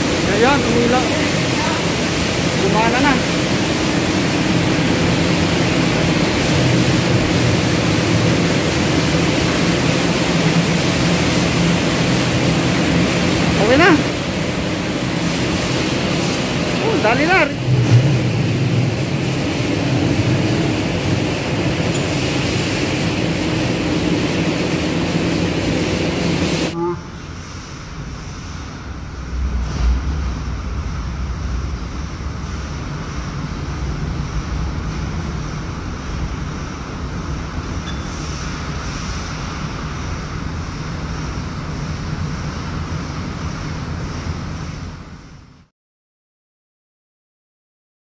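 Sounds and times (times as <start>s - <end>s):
pressure washer running: 0.0s - 26.8s
machinery humming and hissing: 0.0s - 45.7s.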